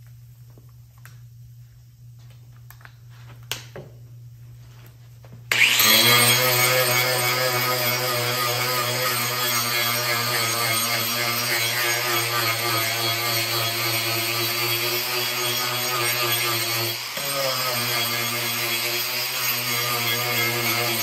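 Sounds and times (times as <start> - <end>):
angle grinder grinding wood: 5.5 - 21.0.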